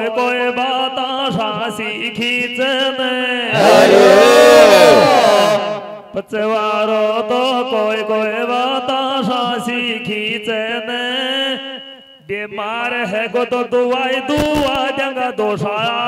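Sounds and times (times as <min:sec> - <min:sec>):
man singing folk song over loudspeaker: 0:06.2 - 0:16.0.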